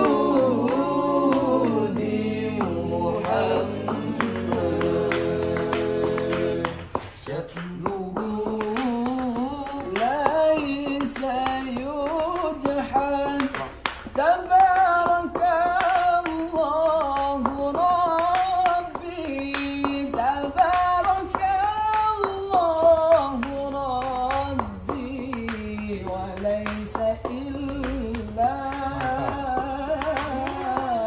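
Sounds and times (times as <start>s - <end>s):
man singing unaccompanied: 0.0s - 31.0s
sharp taps or claps: 0.0s - 31.0s.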